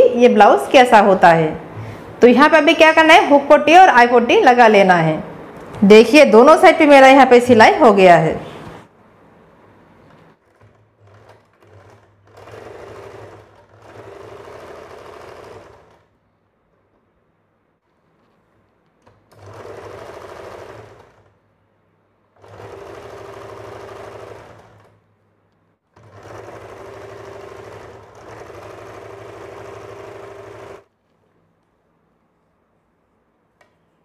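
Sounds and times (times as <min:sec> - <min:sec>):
sewing machine stitching: 0:10.0 - 0:16.1, 0:19.0 - 0:21.4, 0:22.4 - 0:25.0, 0:25.9 - 0:30.9.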